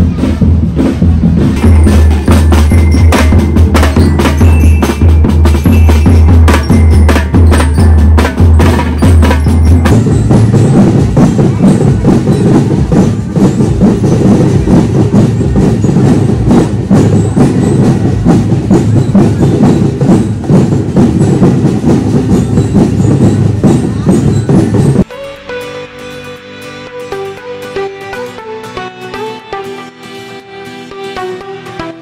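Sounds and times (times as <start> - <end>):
marching drums: 0.0 - 25.1
bell-lyre tones: 1.6 - 27.3.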